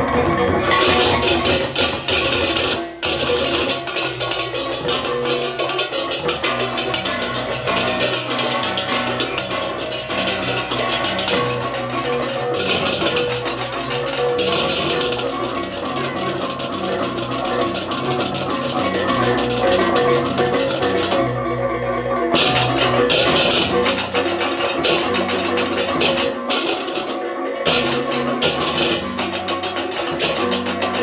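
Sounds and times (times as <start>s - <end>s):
drums: 0.0s - 21.3s, 22.3s - 31.0s
ringing gongs: 0.0s - 21.5s
handheld cymbals clashing: 0.6s - 21.2s, 22.3s - 31.0s.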